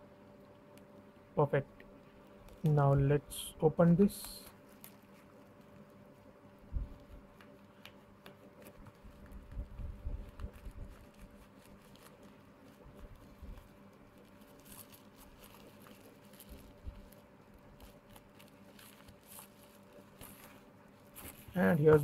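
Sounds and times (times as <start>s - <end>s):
bubble wrap crinkling: 1.8s - 22.0s.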